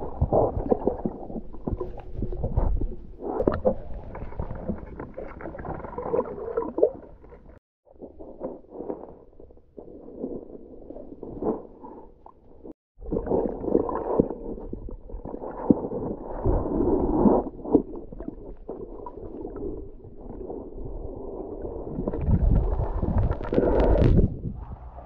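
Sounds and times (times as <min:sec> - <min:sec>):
underwater clicks and knocks: 0:00.0 - 0:07.6
underwater churning water: 0:00.0 - 0:25.0.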